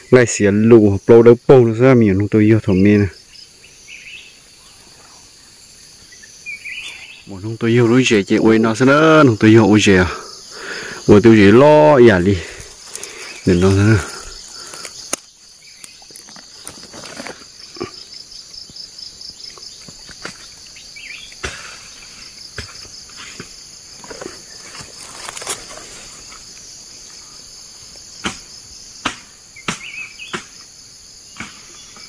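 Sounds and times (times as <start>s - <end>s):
insect chorus with pulsing trill: 0.0s - 32.0s
dry leaves and grass crackling: 3.8s - 28.2s.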